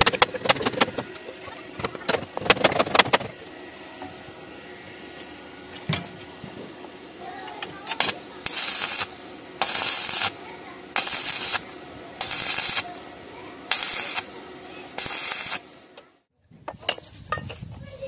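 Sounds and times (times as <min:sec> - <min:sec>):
welding arc crackling: 0:07.2 - 0:16.0.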